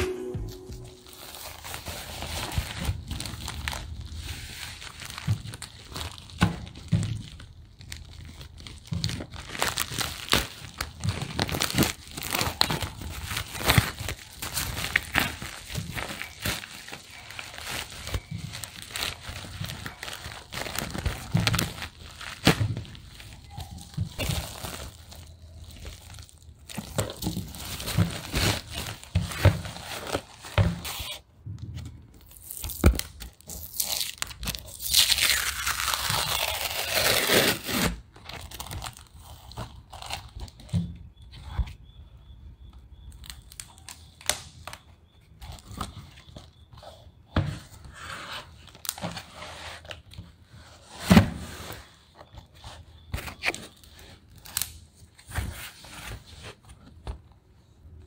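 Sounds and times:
plastic mailer crinkling and tearing: 0.5s - 31.2s, 32.1s - 41.2s, 51.6s - 56.6s
cardboard package tearing open: 1.0s - 31.2s, 32.2s - 40.7s.

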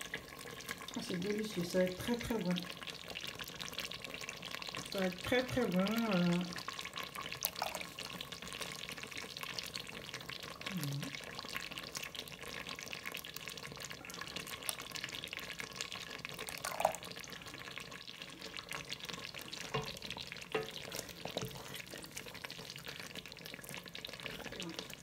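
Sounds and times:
sauce crackling and popping: 0.0s - 25.0s
wooden spoon knocking: 19.7s - 21.7s.

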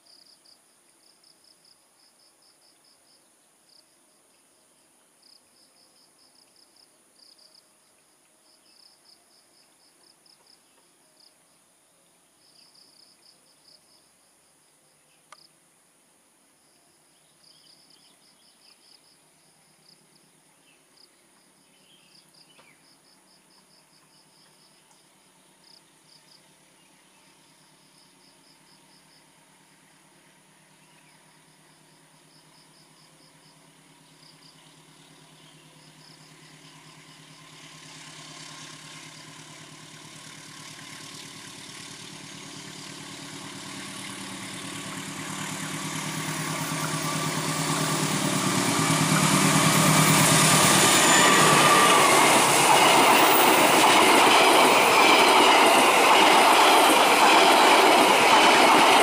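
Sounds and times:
diesel locomotive engine hum: 19.2s - 59.0s.

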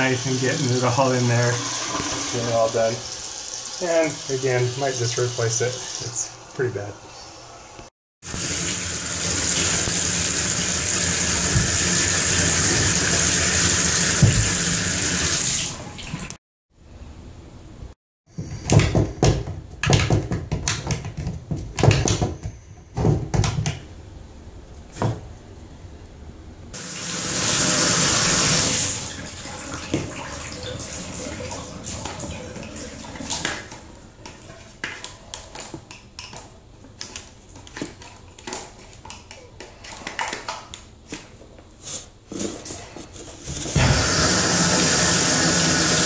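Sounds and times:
water running in a tub: 0.0s - 6.9s, 8.2s - 16.4s, 26.8s - 34.7s, 43.7s - 46.0s.

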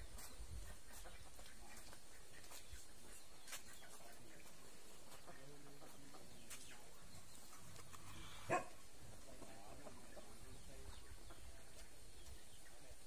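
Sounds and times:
faint outdoor background: 0.0s - 13.0s
dog barking: 8.5s - 8.8s.

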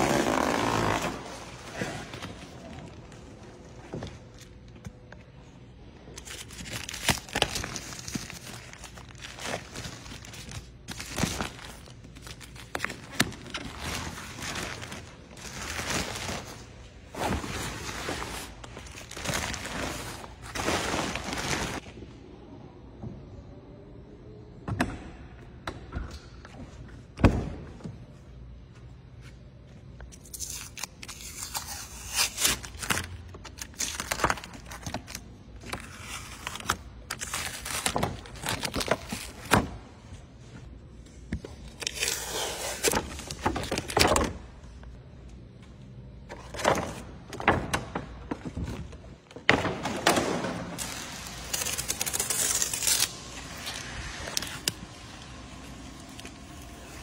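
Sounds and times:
tape and film peeling: 6.1s - 16.6s, 30.1s - 39.7s, 41.4s - 44.3s, 50.8s - 57.0s.

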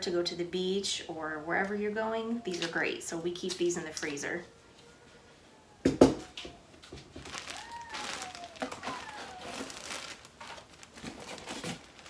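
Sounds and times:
plastic liner crinkling: 6.8s - 12.0s.

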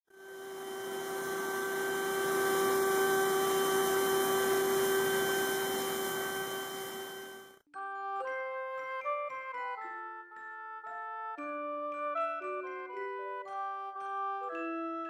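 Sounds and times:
carving machine whine: 0.2s - 7.6s.

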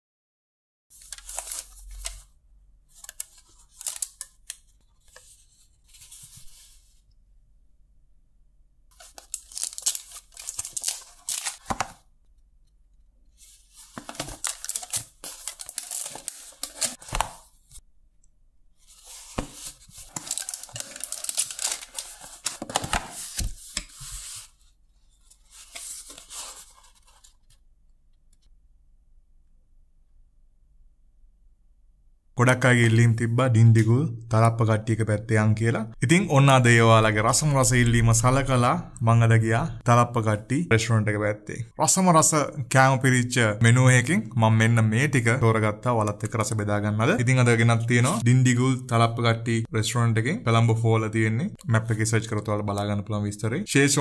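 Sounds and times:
paperboard boxes rustling: 1.0s - 2.3s, 9.0s - 12.0s, 13.4s - 17.8s, 18.8s - 24.6s, 25.2s - 27.6s.

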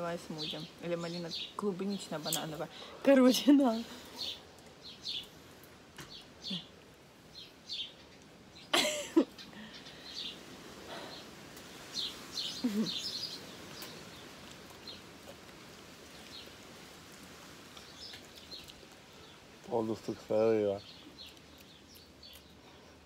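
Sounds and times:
small birds chirping: 0.0s - 23.0s.

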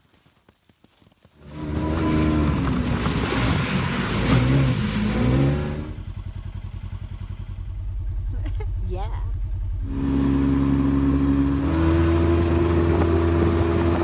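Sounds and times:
utility vehicle engine running: 1.4s - 14.0s.

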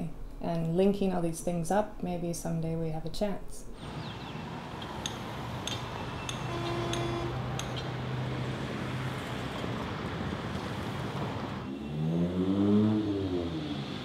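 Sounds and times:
bus engine hum: 3.8s - 14.0s
passing vehicles: 3.8s - 14.0s.

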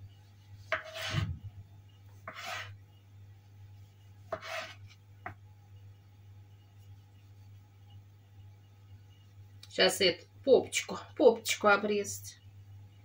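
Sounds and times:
knife cutting tomatoes on board: 0.7s - 1.4s, 2.2s - 2.8s, 4.3s - 5.4s.

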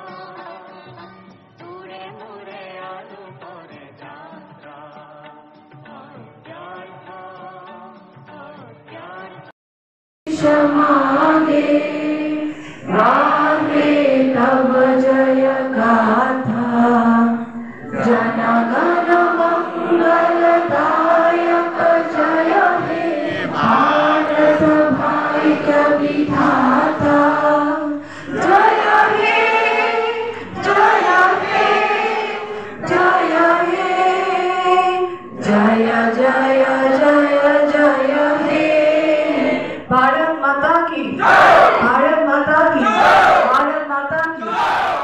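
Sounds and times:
crowd singing in unison: 1.6s - 7.9s, 10.3s - 40.1s, 41.2s - 43.6s, 44.2s - 45.0s
group shout: 23.2s - 24.8s, 41.2s - 41.9s, 42.8s - 43.6s, 44.4s - 45.0s.

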